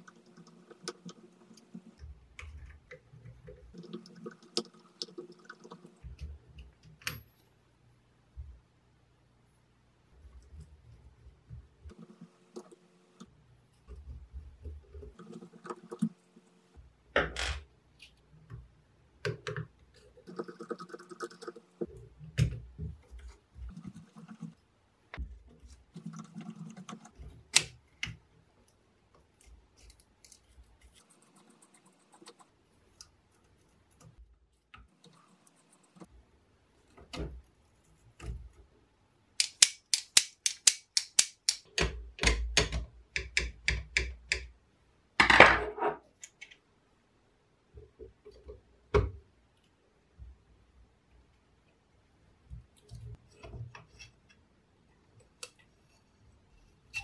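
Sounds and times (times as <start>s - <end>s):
screwdriver clicking and scraping metal: 39.4s - 41.8s.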